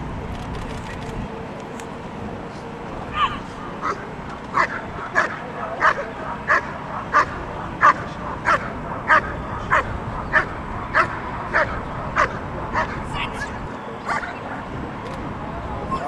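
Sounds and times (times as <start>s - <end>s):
dog barking: 3.2s - 14.6s.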